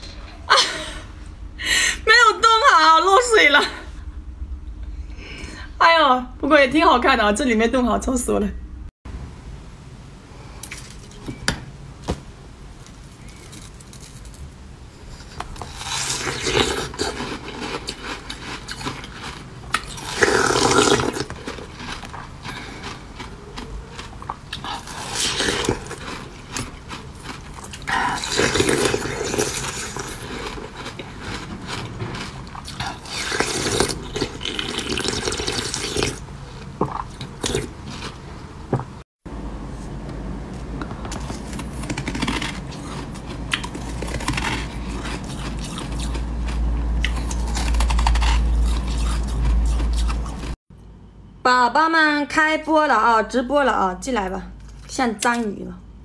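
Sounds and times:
wet chewing: 0:15.1 - 0:38.2, 0:41.1 - 0:50.6
crunching bites: 0:15.2 - 0:38.2, 0:41.1 - 0:50.6.

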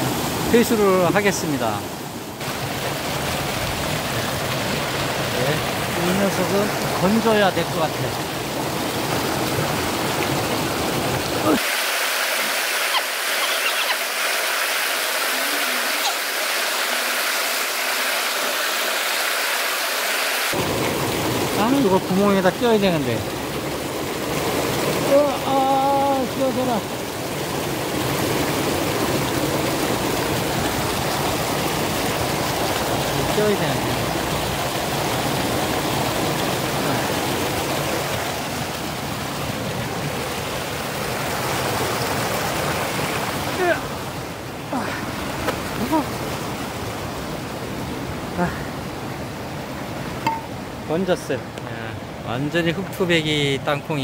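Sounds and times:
waterfall splashing into pool: 0:00.0 - 0:51.9.

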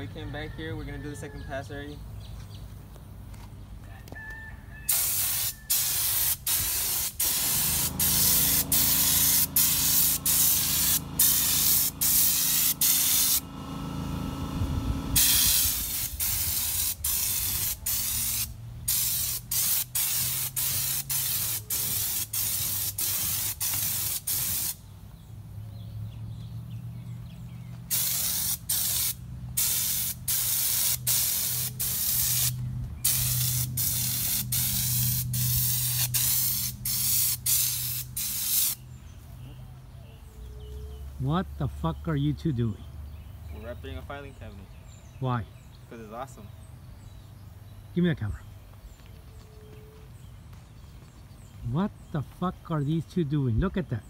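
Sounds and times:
spray gun hissing: 0:04.9 - 0:24.8, 0:27.9 - 0:38.8
low steady hum: 0:07.4 - 0:16.2.

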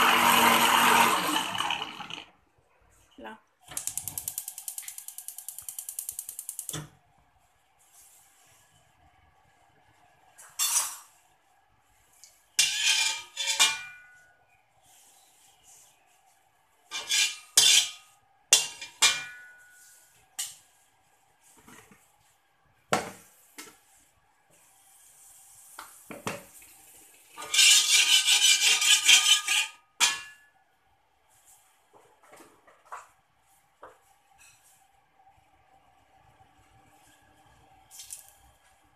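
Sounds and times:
spatula scraping metal wok: 0:12.5 - 0:14.3, 0:16.8 - 0:20.6, 0:27.4 - 0:30.4
metal spatula clanking in wok: 0:16.9 - 0:19.8.

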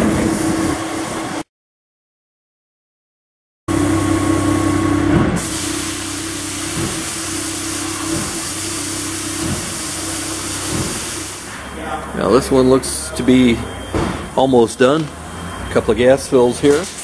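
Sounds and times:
forklift engine running: 0:03.7 - 0:16.6.

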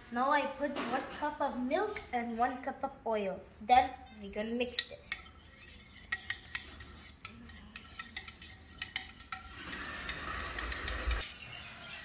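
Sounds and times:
whisk clinking against bowl: 0:04.7 - 0:11.2.

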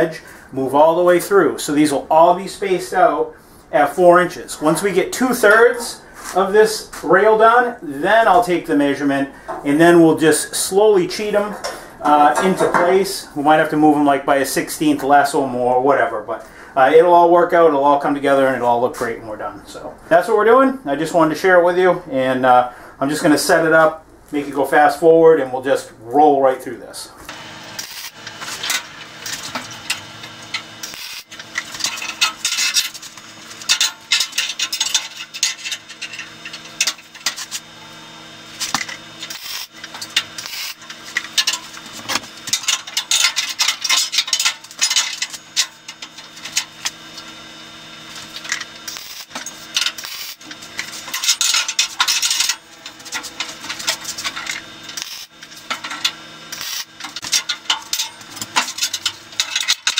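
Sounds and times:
machine hum: 0:26.8 - 0:59.9
crackling tack welds: 0:27.3 - 0:59.9
steel parts clattering on table: 0:27.8 - 0:37.6, 0:38.6 - 0:46.9, 0:48.4 - 0:59.9.

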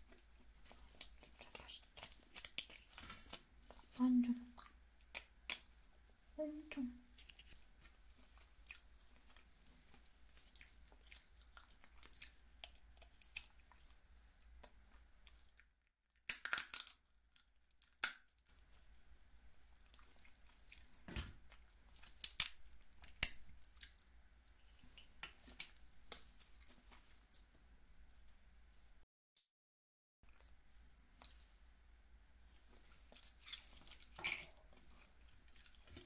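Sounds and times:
wet chewing and mouth clicks: 0:00.0 - 0:06.2, 0:07.2 - 0:15.7, 0:19.7 - 0:27.5, 0:30.3 - 0:31.8, 0:32.4 - 0:36.0.

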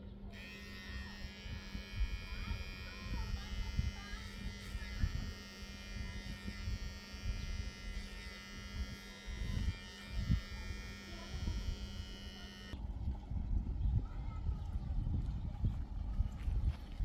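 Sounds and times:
electrical motor buzz: 0:00.0 - 0:12.8.

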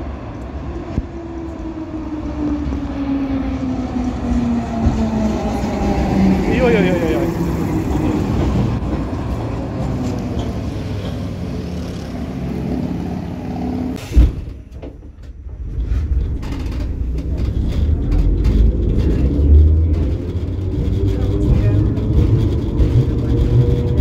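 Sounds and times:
tram rumbling along track: 0:00.0 - 0:24.0
short loud thump: 0:14.0 - 0:14.9.

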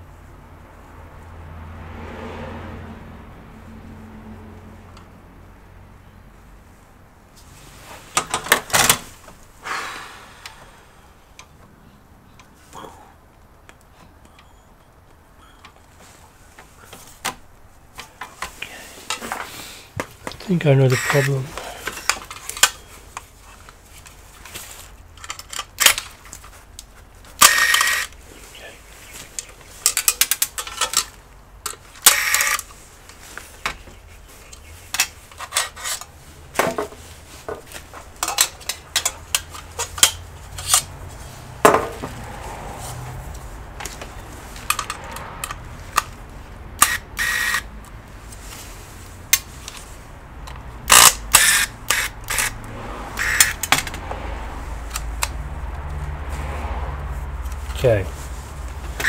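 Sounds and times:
metal parts and tools clattering: 0:25.1 - 0:26.6, 0:29.8 - 0:32.6, 0:34.9 - 0:37.0, 0:38.0 - 0:40.9.

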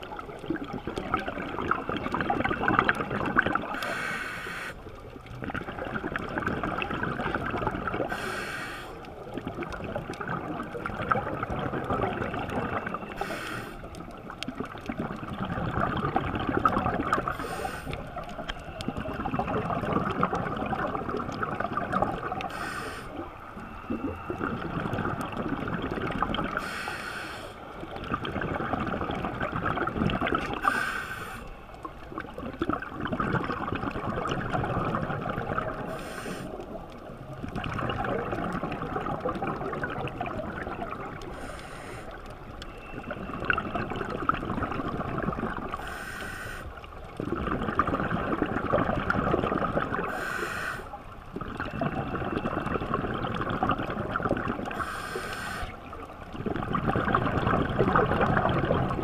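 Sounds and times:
exhaled bubbles rushing: 0:00.0 - 0:03.9, 0:05.1 - 0:08.2, 0:09.1 - 0:26.7, 0:27.7 - 0:30.9, 0:31.8 - 0:45.9, 0:46.8 - 0:50.4, 0:51.0 - 0:59.0
scuba regulator hissing inhalation: 0:03.8 - 0:04.8, 0:08.0 - 0:09.0, 0:13.1 - 0:13.9, 0:17.3 - 0:18.0, 0:22.4 - 0:23.2, 0:26.5 - 0:27.6, 0:30.6 - 0:31.5, 0:35.9 - 0:36.6, 0:41.3 - 0:42.2, 0:45.8 - 0:46.8, 0:50.0 - 0:51.0, 0:54.7 - 0:55.8.

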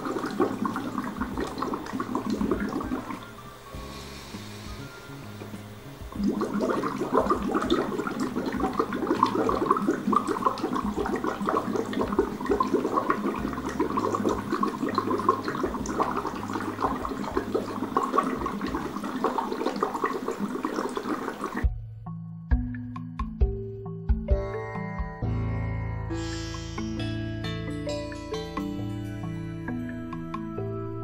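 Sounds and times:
bubbling through a straw in water: 0:00.0 - 0:03.4, 0:05.4 - 0:21.7.

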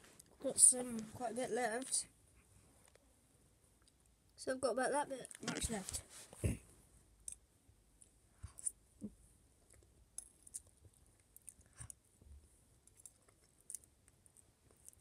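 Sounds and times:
faint chewing: 0:09.6 - 0:15.0.

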